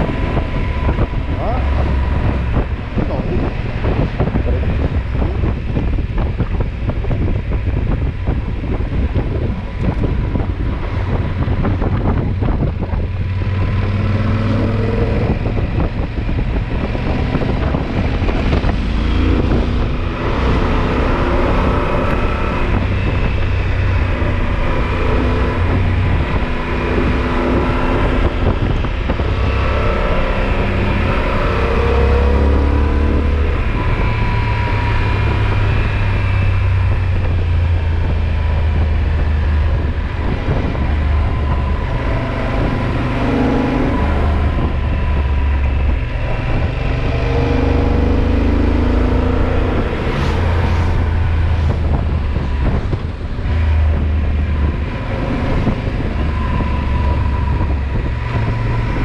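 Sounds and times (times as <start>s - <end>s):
motorcycle engine running: 0.0s - 32.3s
wind buffeting microphone: 0.0s - 59.0s.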